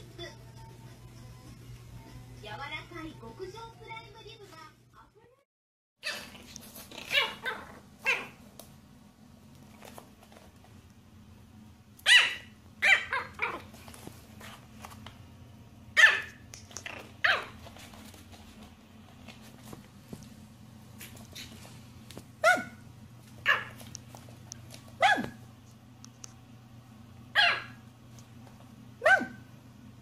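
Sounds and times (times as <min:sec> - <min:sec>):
puppy yapping: 0:06.0 - 0:08.4, 0:12.0 - 0:13.7, 0:16.0 - 0:17.6, 0:22.4 - 0:22.8, 0:23.4 - 0:23.9, 0:25.0 - 0:25.4, 0:27.4 - 0:27.8, 0:29.0 - 0:29.5.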